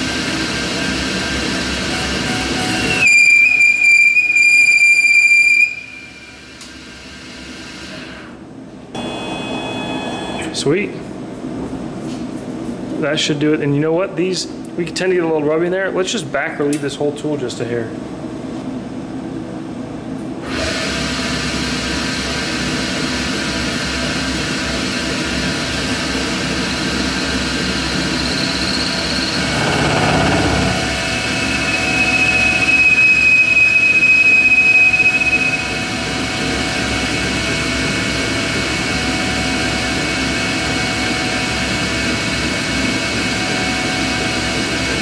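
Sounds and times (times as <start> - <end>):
high whine of cutting tool: 26.7 - 37.9
lathe spindle running: 27.7 - 33.1.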